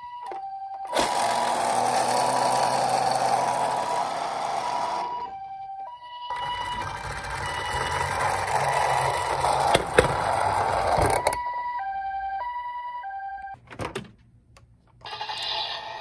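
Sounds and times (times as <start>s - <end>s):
toy siren high-low: 0.0s - 13.6s
toy car rattling down slope: 0.9s - 5.2s, 6.3s - 11.4s.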